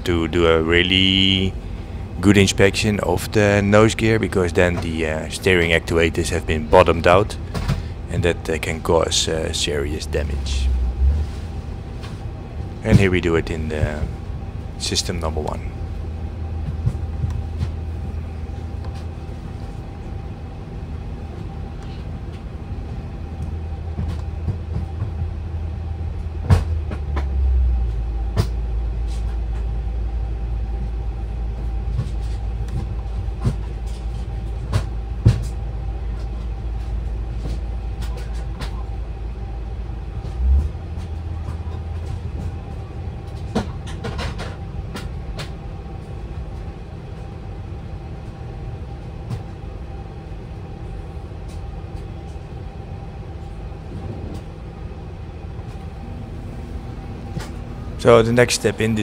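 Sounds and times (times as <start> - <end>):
cockpit systems hum: 0.0 - 59.0
low rumble: 0.0 - 59.0.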